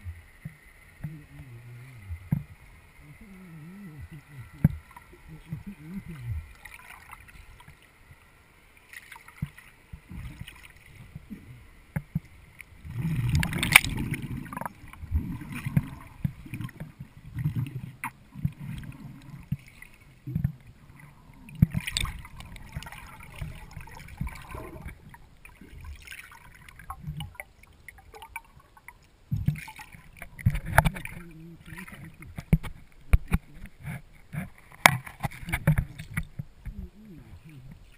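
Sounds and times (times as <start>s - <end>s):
underwater water rumbles and sloshing: 0.0s - 37.9s.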